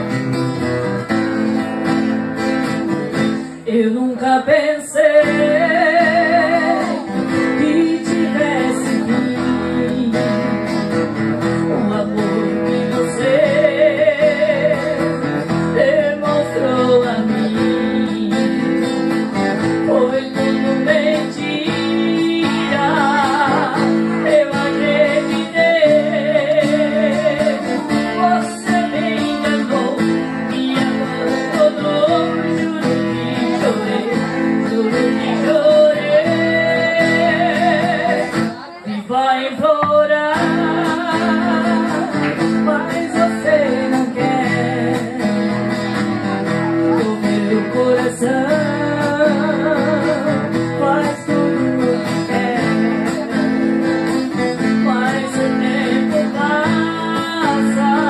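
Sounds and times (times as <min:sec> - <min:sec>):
acoustic guitars strummed and picked: 0:00.0 - 0:58.0
person singing with vibrato: 0:00.0 - 0:58.0.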